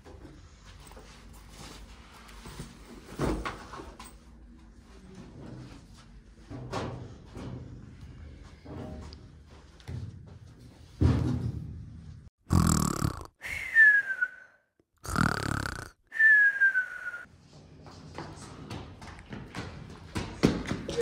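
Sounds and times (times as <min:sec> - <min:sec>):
cartoon snoring with whistle: 0:12.5 - 0:14.1, 0:15.0 - 0:17.3.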